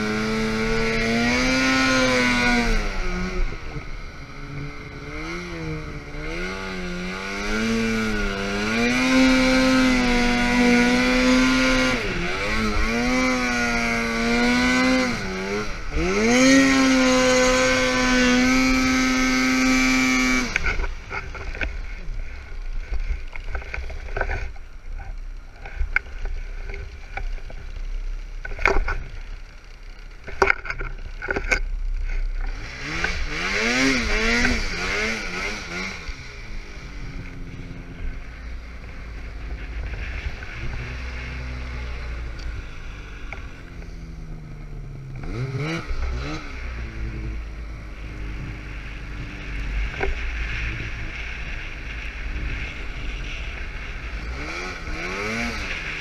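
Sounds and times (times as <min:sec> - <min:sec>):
snowmobile engine revving: 0:00.0 - 0:56.0.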